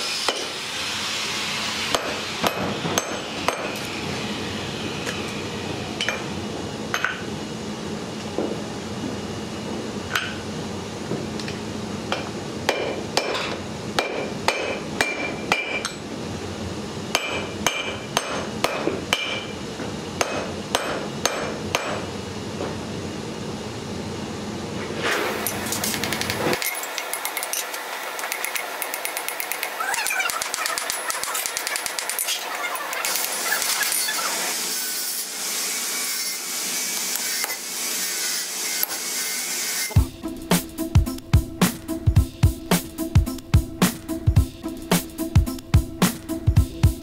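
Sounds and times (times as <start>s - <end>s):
hammer striking metal: 1.9s - 3.9s, 12.1s - 16.0s, 17.1s - 19.5s, 20.2s - 22.0s.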